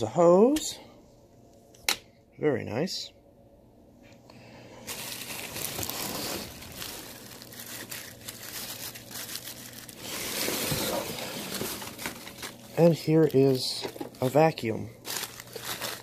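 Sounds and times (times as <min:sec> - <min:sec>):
cardboard packaging rustling: 0:04.8 - 0:16.0.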